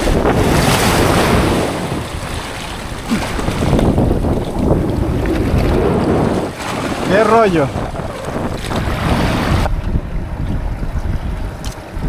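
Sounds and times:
waves splashing against rocks: 0:00.0 - 0:09.7
wind buffeting microphone: 0:00.0 - 0:12.0.

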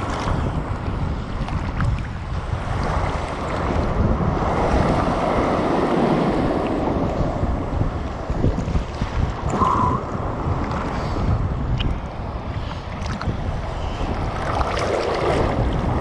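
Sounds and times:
seawater sloshing and splashing: 0:00.0 - 0:07.2, 0:12.5 - 0:16.0
low churning rumble: 0:00.0 - 0:16.0
water gurgle: 0:08.4 - 0:16.0.

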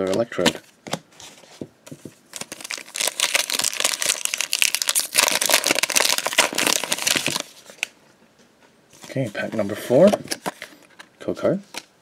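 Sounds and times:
foil wrapper crinkling and tearing: 0:02.3 - 0:07.9.

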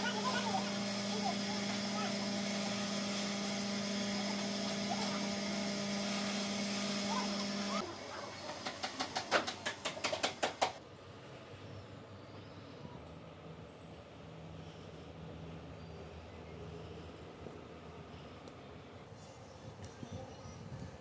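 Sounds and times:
steady low hum: 0:00.0 - 0:08.3.

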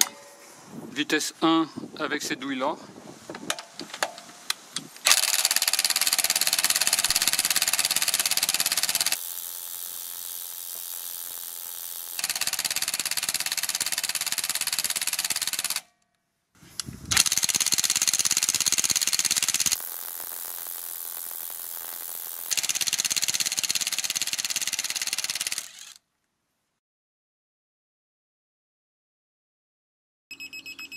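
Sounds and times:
wrench clicks: 0:05.0 - 0:15.8, 0:17.1 - 0:19.8, 0:22.5 - 0:26.0
impact wrench hammering: 0:05.1 - 0:09.2.

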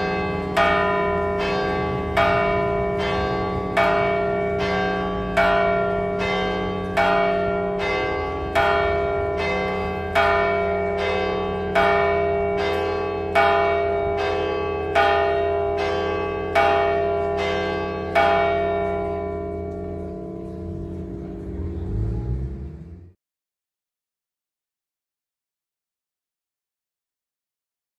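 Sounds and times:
church bell ringing: 0:00.0 - 0:22.0.

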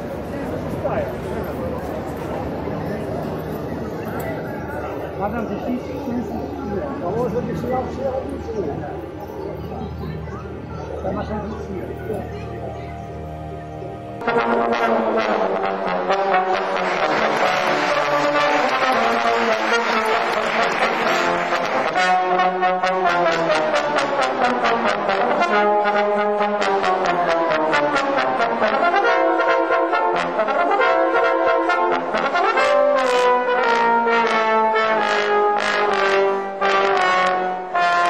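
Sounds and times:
brass music with sliding notes: 0:11.8 - 0:38.0.

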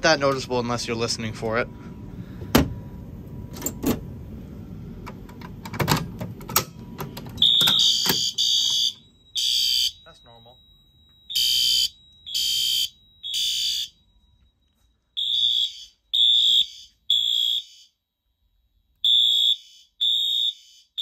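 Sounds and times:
fire alarm horn blasts: 0:07.4 - 0:18.0, 0:19.0 - 0:21.0.

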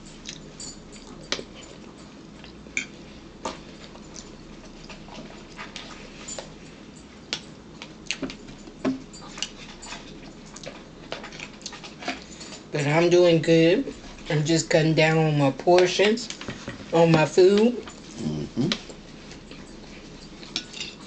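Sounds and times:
chewing: 0:00.1 - 0:06.6, 0:07.3 - 0:12.7.

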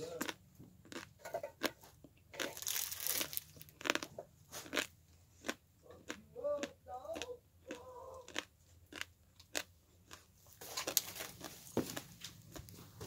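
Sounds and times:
footsteps crunching over debris: 0:02.4 - 0:03.7, 0:10.5 - 0:13.0.

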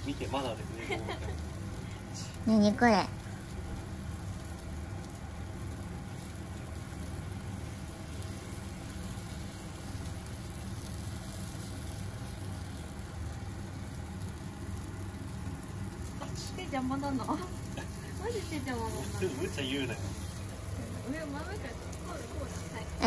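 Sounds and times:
gas burner flames rumbling: 0:00.0 - 0:23.0.

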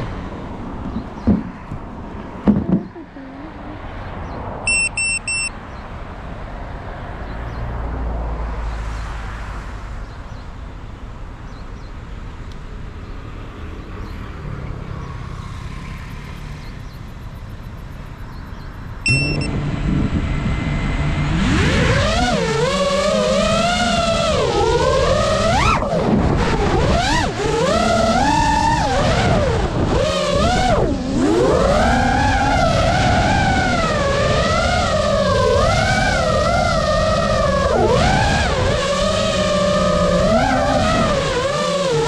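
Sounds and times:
cars passing by: 0:00.0 - 0:42.0
thumps: 0:00.8 - 0:01.8, 0:02.4 - 0:03.0
short high electronic beeps: 0:04.7 - 0:05.5, 0:19.1 - 0:19.5
pitched motor hum: 0:19.1 - 0:42.0.

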